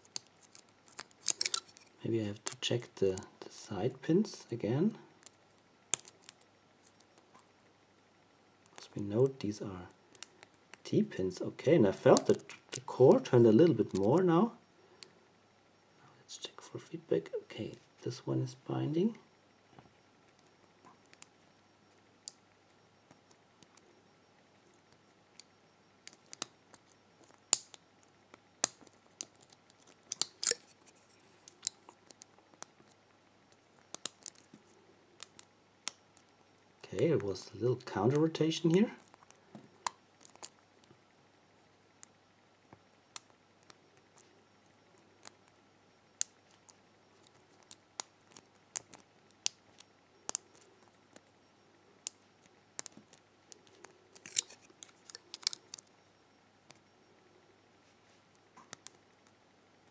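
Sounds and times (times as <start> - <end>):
lock pick clicking and scraping: 0.0 - 1.9, 28.6 - 32.7, 53.6 - 55.8.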